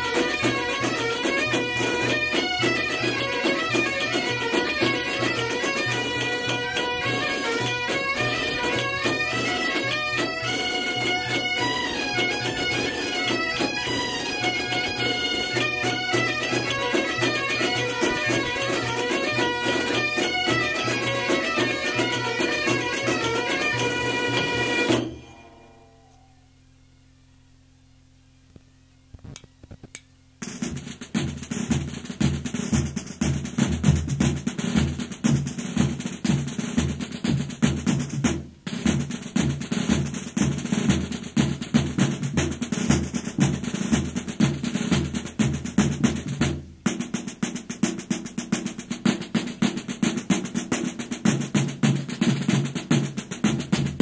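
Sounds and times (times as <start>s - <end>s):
snare and bass drums rolling: 0.0s - 25.2s, 29.2s - 54.0s
faint clicks: 28.5s - 30.1s.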